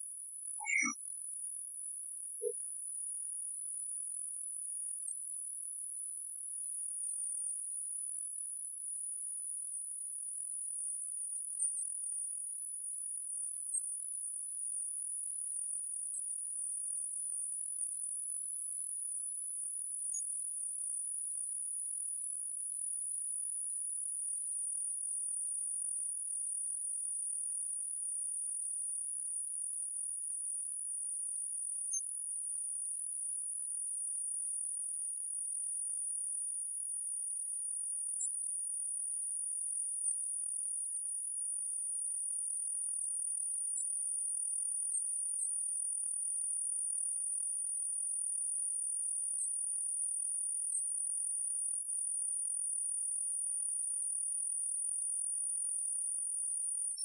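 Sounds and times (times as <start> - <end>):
faint tiny ticks: 0.6 - 1.0
high-pitched electronic whine: 0.6 - 1.0.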